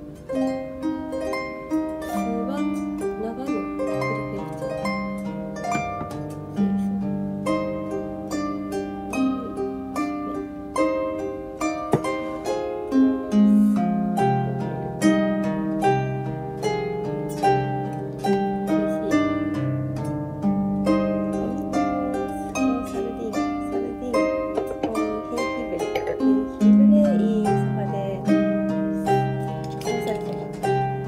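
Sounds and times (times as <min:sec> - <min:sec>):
harp music: 0:00.0 - 0:31.0.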